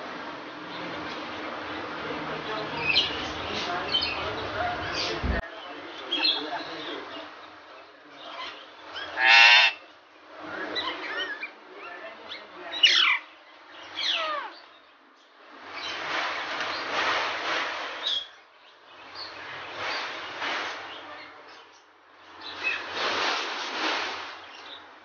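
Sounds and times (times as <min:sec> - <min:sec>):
parakeets squawking and screeching: 0:08.3 - 0:09.8, 0:10.7 - 0:14.7.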